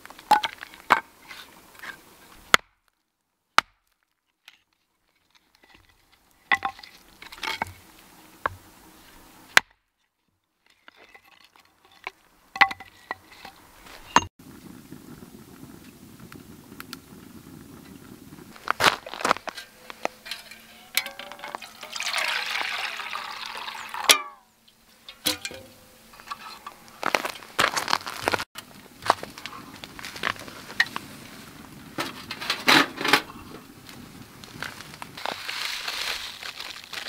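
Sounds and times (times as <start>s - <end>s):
hatchet chopping wood: 2.5s - 2.8s, 3.6s - 4.0s.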